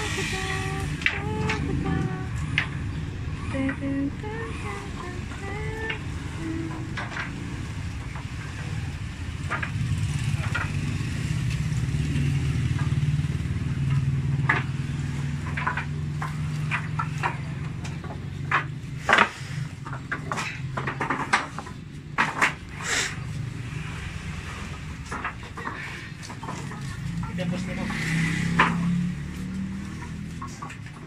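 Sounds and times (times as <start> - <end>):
low engine hum: 0.0 - 20.8
wooden boards knocking together: 6.7 - 11.5, 12.6 - 22.8, 23.6 - 27.2, 28.5 - 29.0, 29.6 - 31.0.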